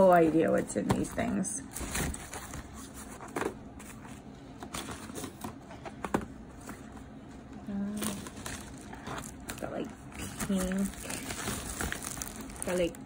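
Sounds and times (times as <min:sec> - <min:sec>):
gloves rustling: 0:08.0 - 0:13.0.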